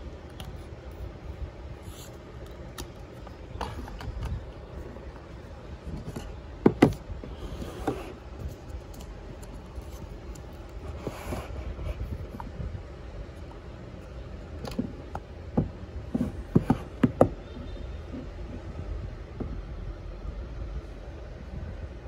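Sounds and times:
steady low hum: 0.0 - 22.0
phone tapping on cardboard box: 6.6 - 7.0.

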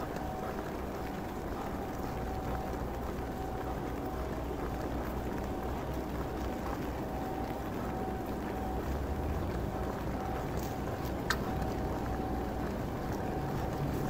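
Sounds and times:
city traffic rumble: 0.0 - 14.0
steady rain: 0.0 - 14.0.

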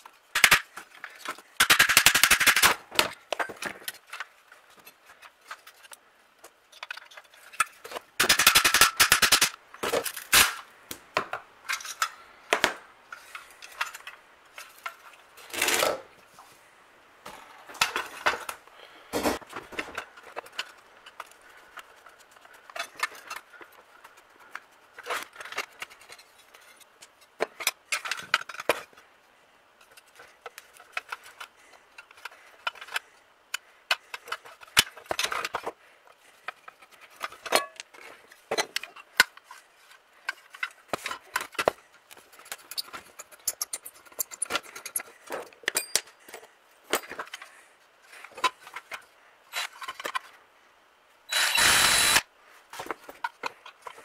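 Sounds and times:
small metal parts clattering: 11.6 - 12.2, 13.1 - 16.0, 19.4 - 24.2, 36.4 - 50.4.

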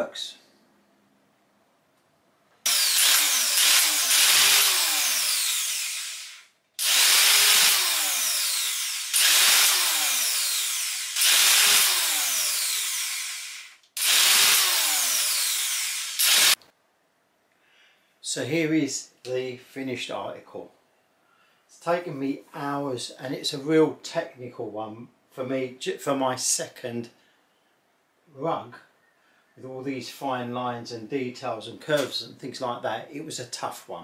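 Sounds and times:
electric tufting gun running: 2.7 - 16.6.

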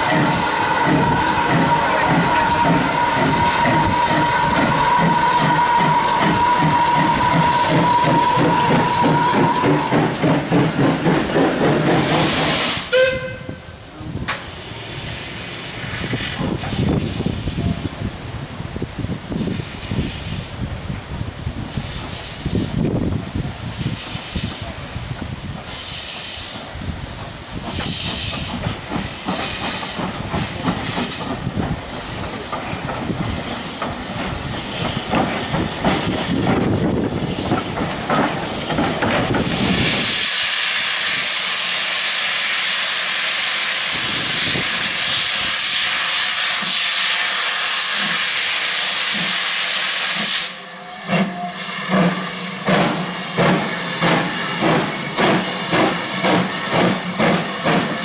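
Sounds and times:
locomotive chuffs and clanks: 0.0 - 12.8, 23.8 - 40.2, 50.2 - 58.0
steam venting hiss: 0.0 - 18.1, 19.0 - 58.0
steam locomotive rumble: 0.0 - 58.0.

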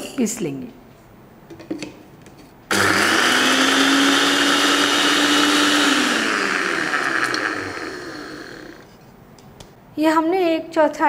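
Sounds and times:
electric mixer grinder whining: 2.7 - 8.9.

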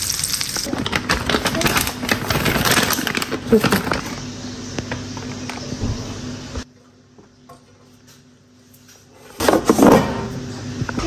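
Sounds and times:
plastic packet rustling: 0.0 - 5.6.

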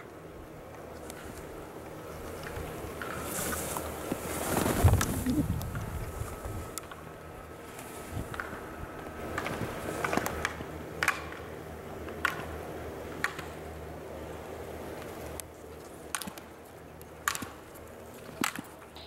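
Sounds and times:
skis scraping over packed snow: 2.4 - 6.6.

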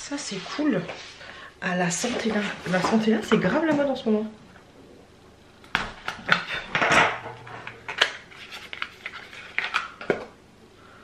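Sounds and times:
packaging crinkling: 7.6 - 10.1.

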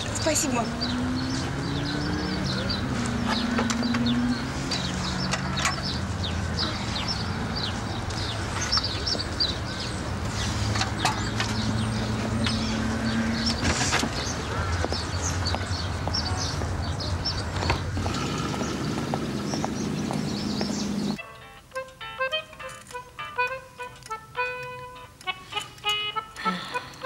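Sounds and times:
small birds chirping: 0.0 - 21.2.

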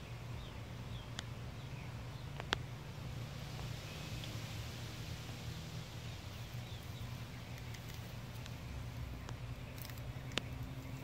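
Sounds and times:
faint clicks and rustles: 6.7 - 11.0.

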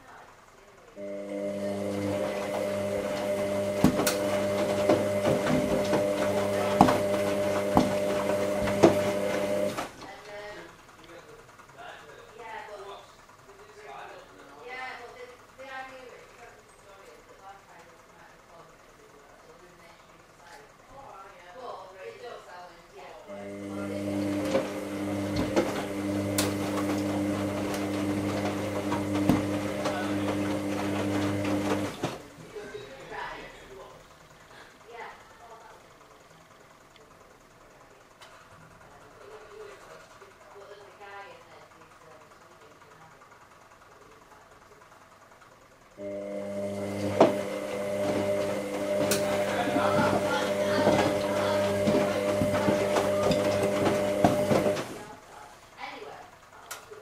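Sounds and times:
washing machine electric hum: 0.0 - 57.0
knocks from washing machine drum: 3.6 - 9.7.

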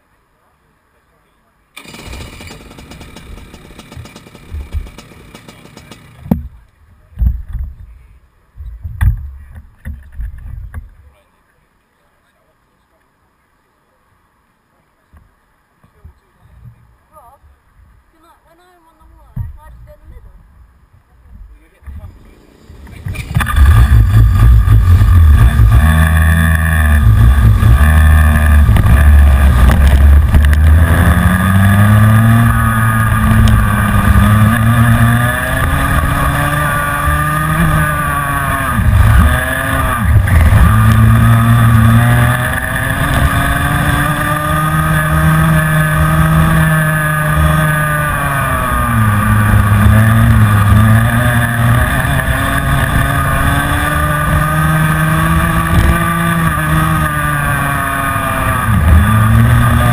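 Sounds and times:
kart engine revving: 1.8 - 6.4, 22.0 - 59.9.

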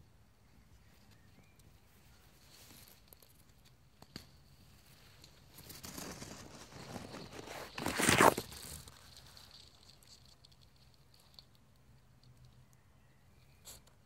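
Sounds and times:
leaves rustling against camera: 4.6 - 11.6.

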